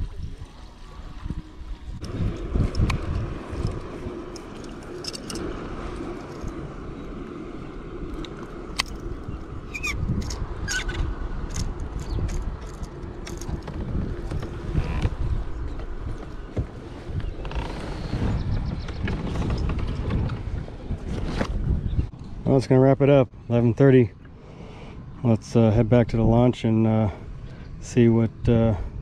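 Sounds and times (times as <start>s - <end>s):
water lapping at a kayak: 0.0s - 11.2s
wind rumbling on microphone: 0.0s - 22.8s.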